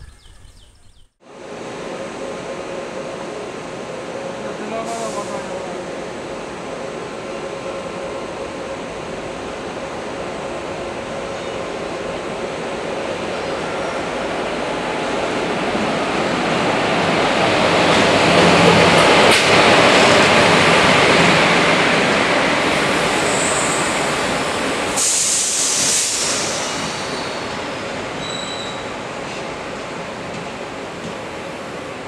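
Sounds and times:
train rumbling past: 0.0 - 32.0
high-pitched brake squeal: 28.2 - 28.9.

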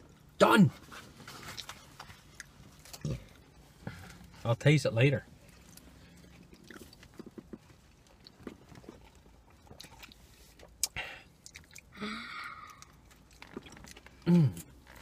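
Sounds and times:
chewing salad: 1.3 - 4.3, 5.4 - 12.0, 12.6 - 15.0.

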